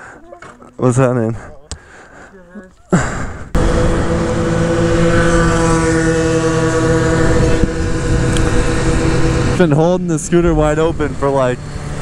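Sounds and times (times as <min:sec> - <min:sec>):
scooter engine at full throttle: 0:03.0 - 0:12.0
wind rushing over microphone: 0:03.2 - 0:12.0.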